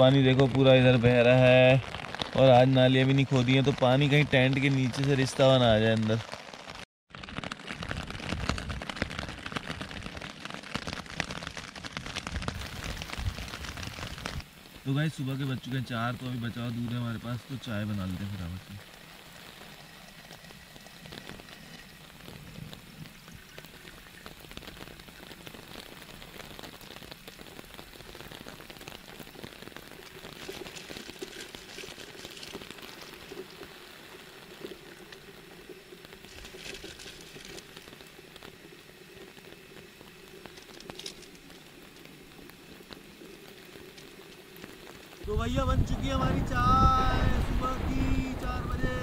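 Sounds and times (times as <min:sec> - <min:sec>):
camping stove burning: 0:00.0 - 0:49.0
rain on a tent: 0:00.0 - 0:49.0
plastic bag crinkling: 0:29.1 - 0:45.0.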